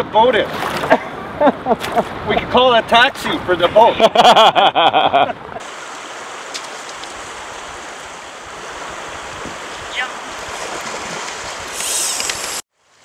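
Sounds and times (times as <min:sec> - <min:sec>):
river water rushing: 0:05.6 - 0:13.0.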